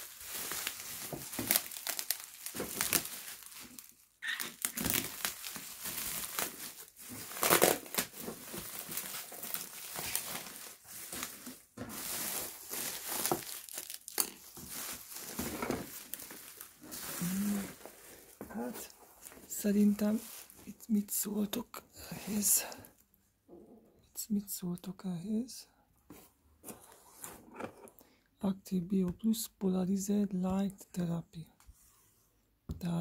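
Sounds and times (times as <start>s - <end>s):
bubble wrap crinkling: 0.0s - 21.1s.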